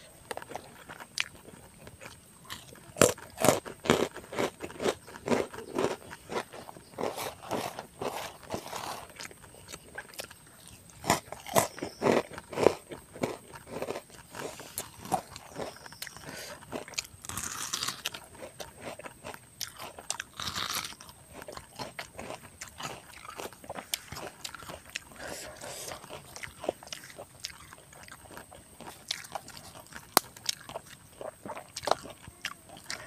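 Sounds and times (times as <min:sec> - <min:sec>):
person chewing crunchy food: 0:00.0 - 0:33.0.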